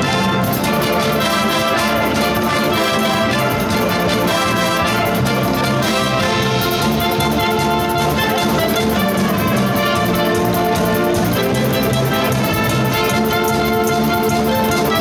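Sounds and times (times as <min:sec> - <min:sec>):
drum kit steady beat: 0:00.0 - 0:15.0
wind band playing: 0:00.0 - 0:15.0.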